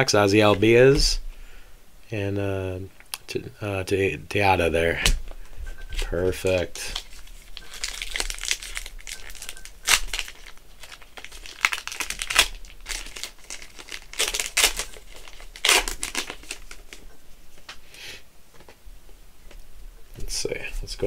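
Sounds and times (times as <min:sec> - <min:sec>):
plastic wrapper crinkling: 0:05.9 - 0:17.7.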